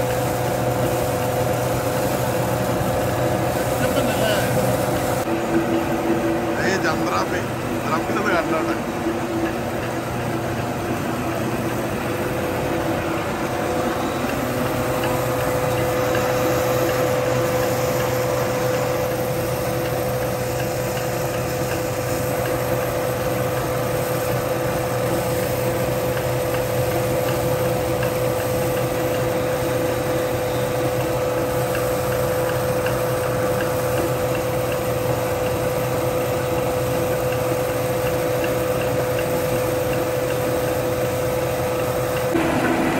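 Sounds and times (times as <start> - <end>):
steady whine: 0.0 - 25.9, 40.0 - 42.9
rice huller machine running: 0.0 - 42.9.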